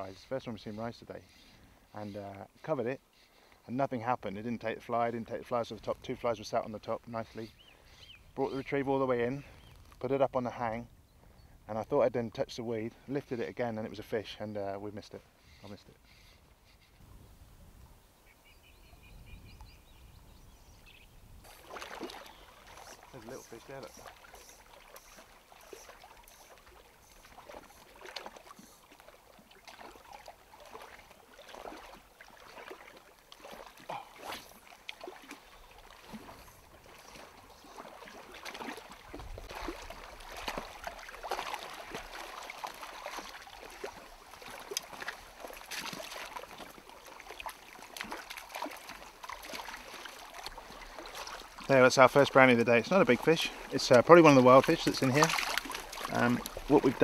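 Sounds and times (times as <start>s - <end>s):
ripples lapping against boulders: 21.4s - 57.0s
fish splashing at surface: 21.5s - 51.7s, 53.4s - 57.0s.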